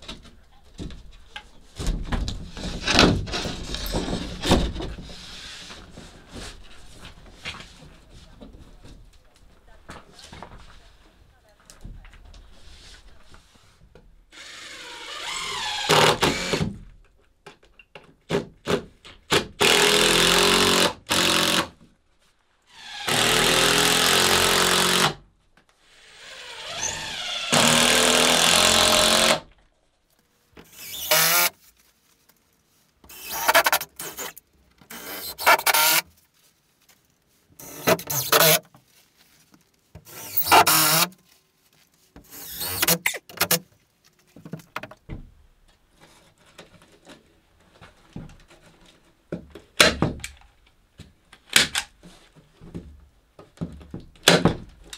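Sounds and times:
power drill driving screws: 0:14.4 - 0:16.7, 0:19.6 - 0:21.7, 0:22.8 - 0:25.2, 0:25.9 - 0:29.4, 0:30.7 - 0:31.6, 0:33.1 - 0:36.1, 0:37.6 - 0:38.6, 0:40.1 - 0:41.1, 0:42.3 - 0:43.6.

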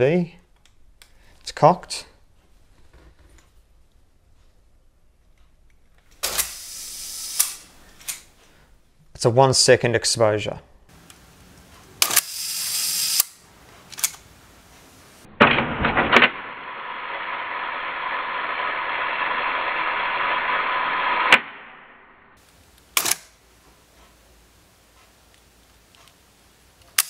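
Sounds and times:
steady hiss: 0:06.2 - 0:08.6, 0:10.9 - 0:15.3, 0:16.6 - 0:21.3
camera shutter click: 0:12.0 - 0:13.4, 0:23.0 - 0:23.3.

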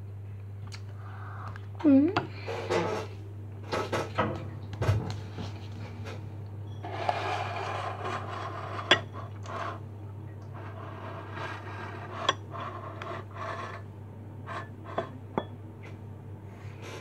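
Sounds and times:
steady low hum: 0:00.0 - 0:17.0
tableware rubbing and scraping: 0:02.3 - 0:04.2, 0:05.5 - 0:09.8, 0:10.5 - 0:15.5
glass clinking on bowl: 0:15.0 - 0:15.6.

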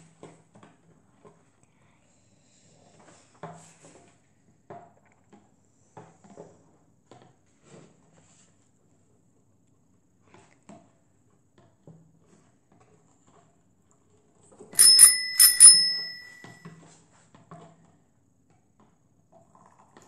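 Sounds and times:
bright bell ringing: 0:14.8 - 0:16.6.

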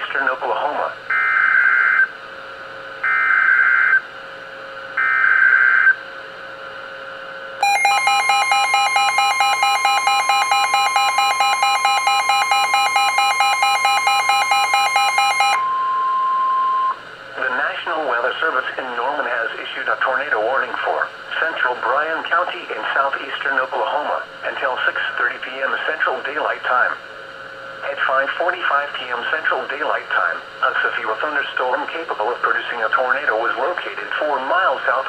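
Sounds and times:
rapidly pulsing electronic alarm: 0:01.1 - 0:02.1, 0:03.0 - 0:04.0, 0:05.0 - 0:06.0, 0:07.6 - 0:17.0
screechy digital data tones: 0:07.6 - 0:15.6
steady warning tone: 0:07.6 - 0:17.0.

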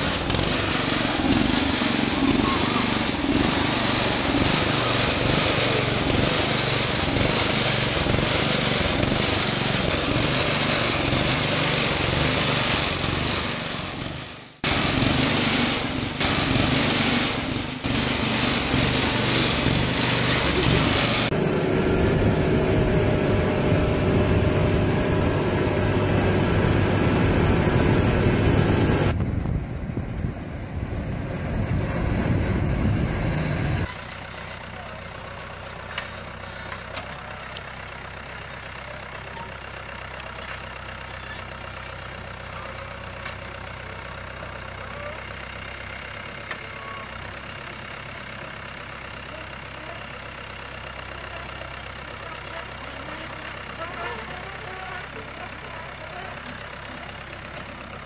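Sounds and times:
steady engine tone: 0:00.0 - 0:39.6
riding mower engine running: 0:00.0 - 0:58.0
tracked tractor engine: 0:00.0 - 0:58.0.

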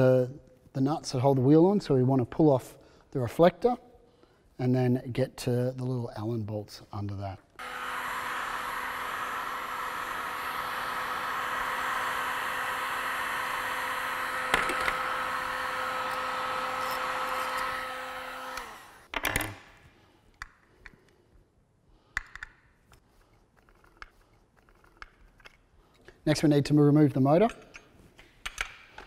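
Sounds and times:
heat gun blowing with fan whine: 0:07.6 - 0:19.1.

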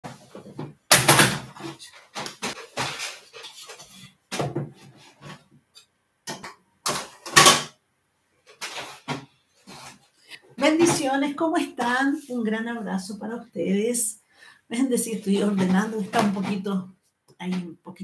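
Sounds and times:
objects bumping on a desk: 0:04.3 - 0:05.4.

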